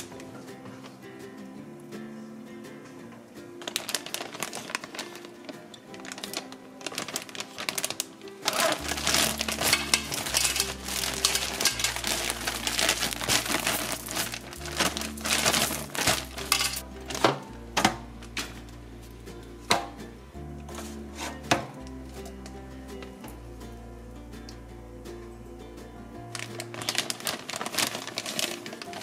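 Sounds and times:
background music: 0.0 - 29.0
plastic bag crinkling: 3.6 - 17.4, 26.3 - 29.0.

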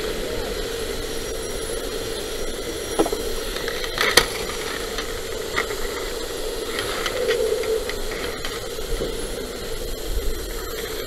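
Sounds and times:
firefighting equipment droning hum: 0.0 - 11.0
sharp cracks: 3.0 - 8.6.

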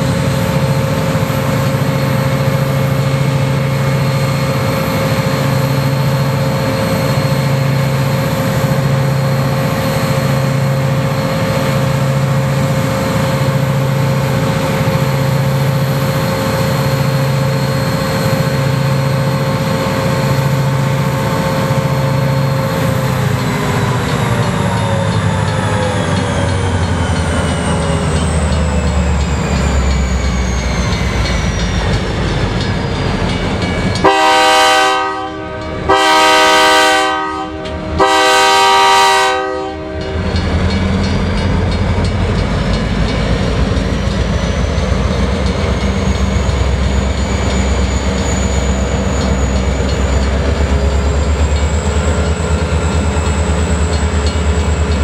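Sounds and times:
locomotive engine rumble and whine: 0.0 - 55.0
locomotive air horn blasts: 34.0 - 40.2.

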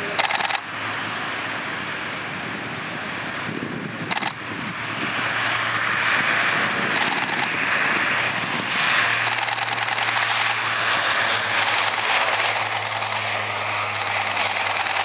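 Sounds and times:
turboprop engines on takeoff: 0.0 - 15.0
camera shutter clicks: 0.2 - 0.6, 4.1 - 4.4, 7.0 - 7.5, 9.3 - 10.6, 11.6 - 13.3, 13.9 - 15.0.

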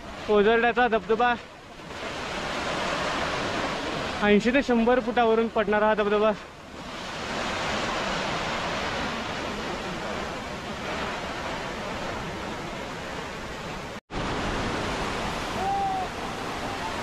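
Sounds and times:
waterfall roaring: 7.3 - 17.0.

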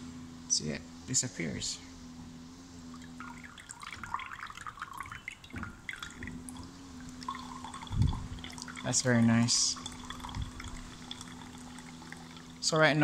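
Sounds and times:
faint low hum: 0.0 - 13.0
liquid trickling into beaker: 3.0 - 12.8.

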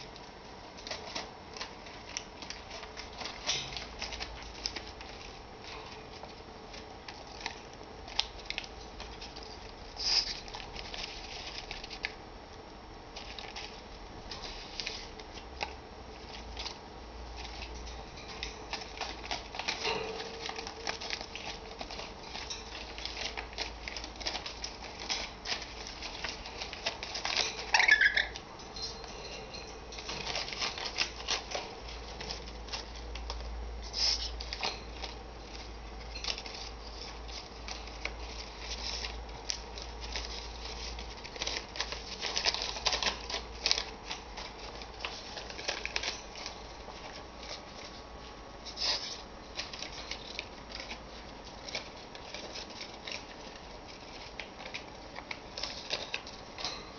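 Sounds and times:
paper rustling: 0.0 - 12.2, 13.1 - 56.9
bird scrambling on wire cage: 17.5 - 25.4, 26.1 - 32.5.

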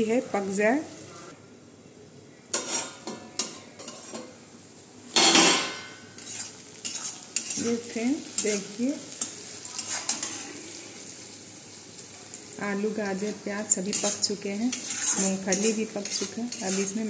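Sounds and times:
food sizzling: 0.0 - 1.4, 2.5 - 17.0
metal lid scraping off pan: 2.6 - 3.0, 13.9 - 17.0
spatula scraping pan: 2.6 - 4.4, 5.2 - 10.8, 13.1 - 17.0.

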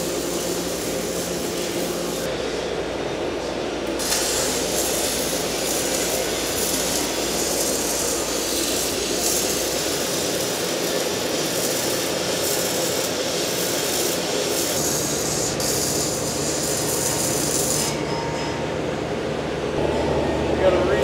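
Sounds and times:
welding arc: 0.0 - 2.3, 3.8 - 18.0.

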